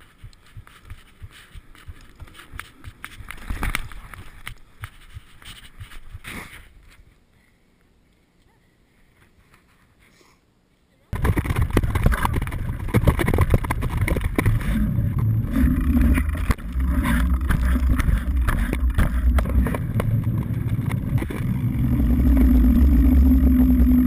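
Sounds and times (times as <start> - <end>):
bike rattles and knocks: 11.2 - 24.0
bike rumbling over rough ground: 11.2 - 24.0
knobby tyres humming on pavement: 11.2 - 24.0.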